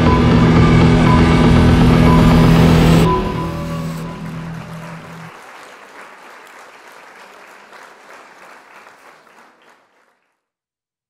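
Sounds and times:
low held tone: 0.0 - 5.3
audience applause: 3.2 - 10.4.

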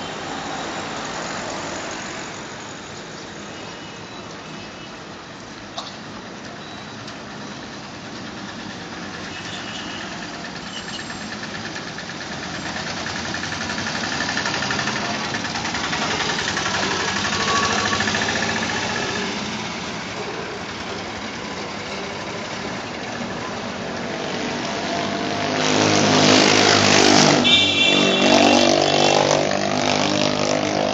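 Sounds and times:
road traffic passing: 0.0 - 30.9
motorcycle engine: 9.6 - 30.9.

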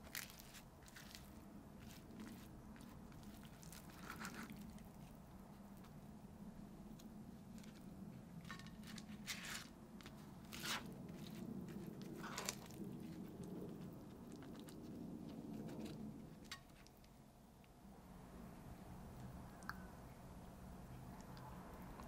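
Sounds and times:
food handling crackles and rustles: 0.0 - 6.1, 6.8 - 17.1.

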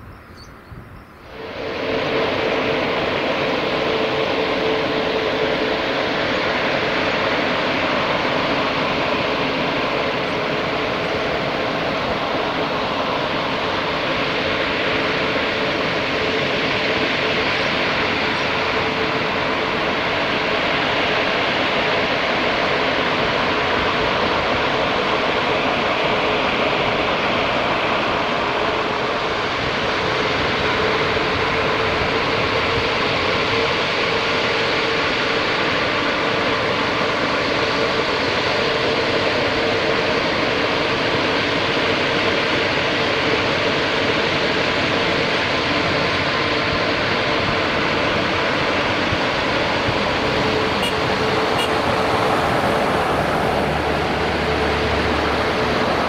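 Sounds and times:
low hum: 0.0 - 33.6, 44.9 - 56.0
jet engines roaring: 0.0 - 56.0.

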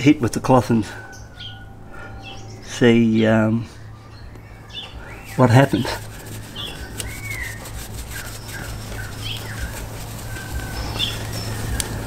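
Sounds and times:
small birds chirping: 0.6 - 12.0.

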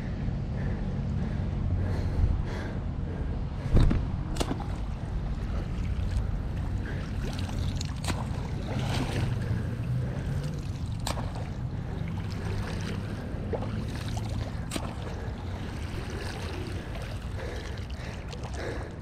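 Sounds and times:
steady low rumble: 0.0 - 19.0
net splashing through water: 4.3 - 19.0.

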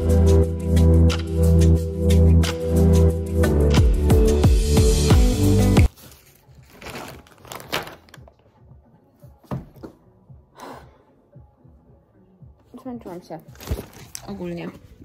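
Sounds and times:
plastic bags crinkling: 5.9 - 8.4, 13.5 - 14.6.

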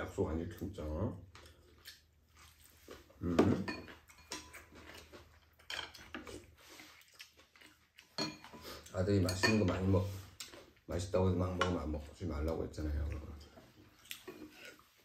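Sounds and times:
chewing noises: 1.3 - 9.2, 12.0 - 15.0
utensils clinking on ceramic bowls: 3.6 - 4.7, 8.1 - 9.9.

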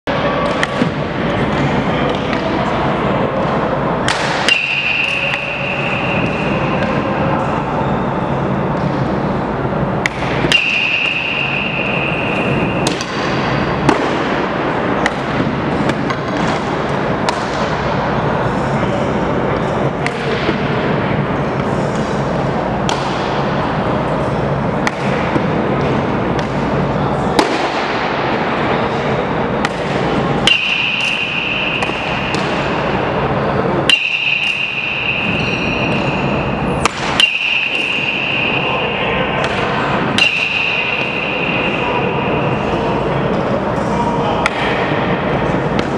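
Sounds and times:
batting cage background noise: 0.1 - 45.9
sharp crack: 4.0 - 5.4, 27.3 - 28.4
baseballs cracking on bats: 4.0 - 5.6, 10.0 - 11.4, 12.3 - 17.8, 24.7 - 28.4, 29.5 - 33.2, 36.8 - 38.6.

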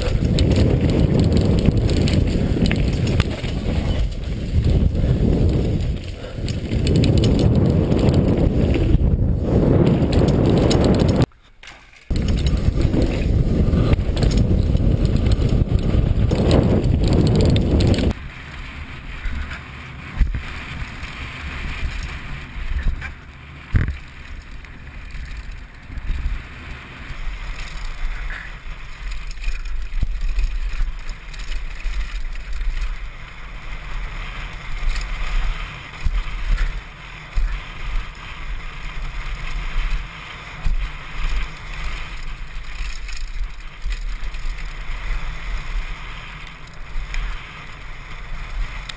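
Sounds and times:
wind buffeting microphone: 0.0 - 11.3, 12.1 - 18.2
bike tyre and frame rattle: 0.0 - 48.9.

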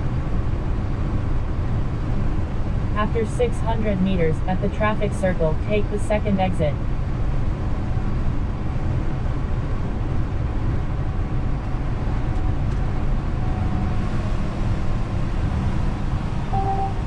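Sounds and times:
road noise: 0.0 - 17.0
truck diesel engine rumbling: 0.0 - 17.0
two-note tone: 16.5 - 17.0.

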